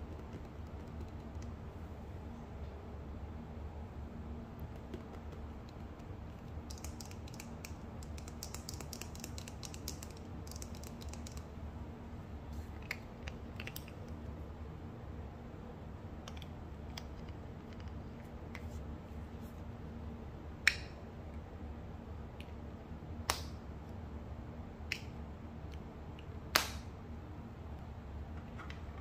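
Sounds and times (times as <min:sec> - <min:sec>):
fingers tapping on plastic tube: 0:00.0 - 0:01.5, 0:04.6 - 0:06.1.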